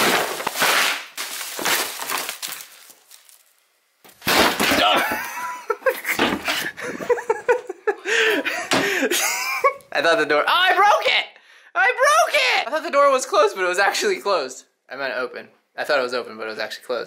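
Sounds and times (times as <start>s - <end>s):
crash of something breaking: 0.0s - 3.5s, 4.1s - 5.3s
rustling handling noise: 0.0s - 4.3s.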